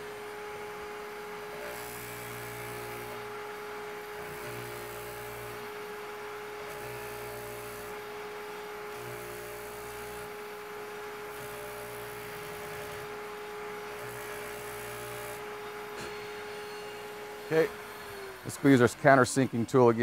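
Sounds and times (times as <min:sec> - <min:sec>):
carver motor whining: 0:00.0 - 0:20.0.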